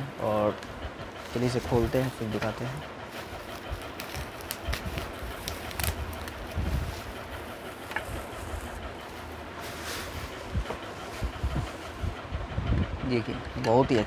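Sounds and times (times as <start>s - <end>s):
low handling rumble: 0.0s - 14.0s
bubble wrap crinkling: 3.1s - 10.4s
sharp crackles: 3.5s - 6.6s.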